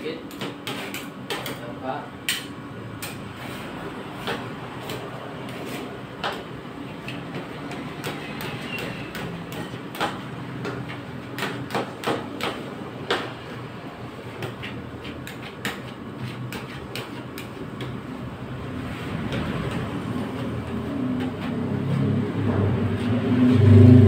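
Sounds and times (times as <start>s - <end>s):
metal spatulas scraping steel pan: 8.1s - 9.8s, 14.5s - 17.6s.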